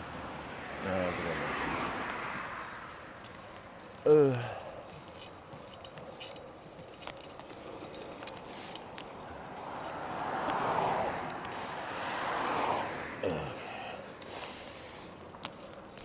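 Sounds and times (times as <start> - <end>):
bicycle clicks and rattles: 1.8 - 11.6, 13.6 - 16.0
bicycle tyres hissing on pavement: 9.8 - 15.3.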